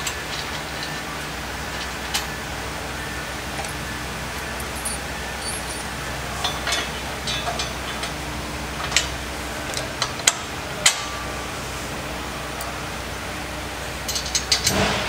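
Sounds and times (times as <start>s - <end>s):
steady low hum: 0.0s - 15.0s
metallic clinks of bolt hardware: 4.4s - 7.6s.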